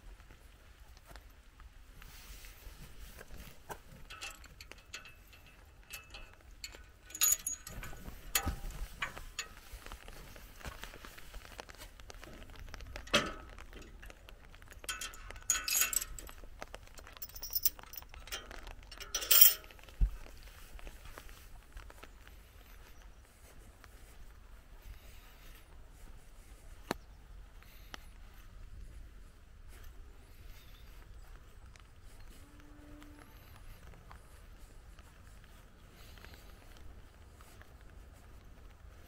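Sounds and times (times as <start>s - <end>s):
metal gate chain rattling: 3.7s - 10.0s, 12.3s - 19.9s
metal gate clanks: 3.9s - 9.6s, 13.0s - 14.0s, 14.8s - 16.4s, 17.2s - 19.8s.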